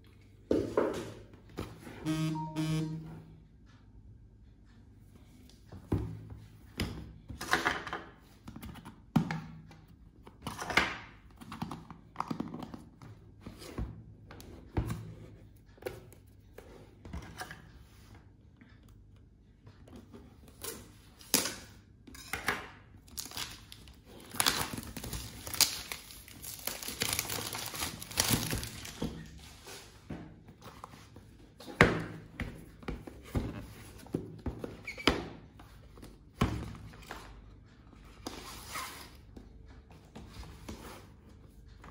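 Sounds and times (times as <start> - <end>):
plastic shrink-wrap crinkling: 23.1 - 29.4.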